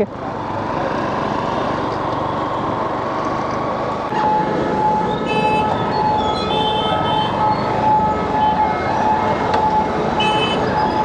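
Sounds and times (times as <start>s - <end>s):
motorcycle engine: 0.0s - 11.0s
vehicle horns honking: 5.2s - 7.4s, 10.2s - 10.7s.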